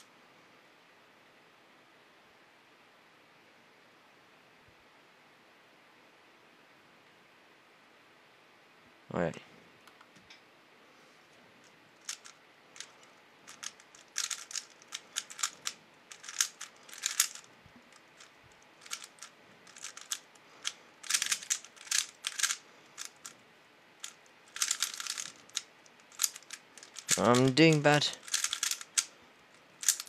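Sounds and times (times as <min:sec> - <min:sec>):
puzzle cube plastic clicks: 0:12.0 - 0:23.4, 0:24.0 - 0:30.0.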